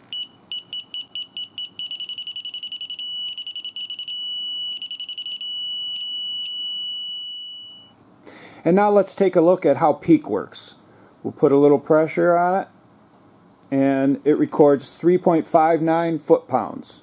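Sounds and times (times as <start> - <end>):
torque wrench buzzer beeping: 0.0 - 8.0.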